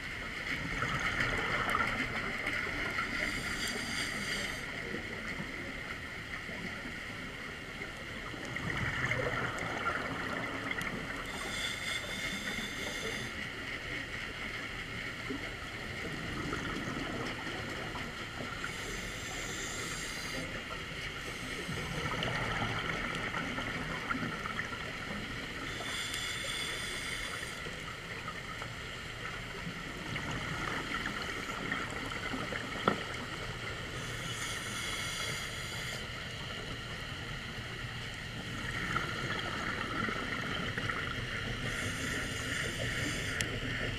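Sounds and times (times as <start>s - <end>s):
watery hiss: 1.2s - 5.2s, 9.0s - 13.7s, 18.5s - 28.3s, 33.8s - 36.7s, 41.5s - 43.9s.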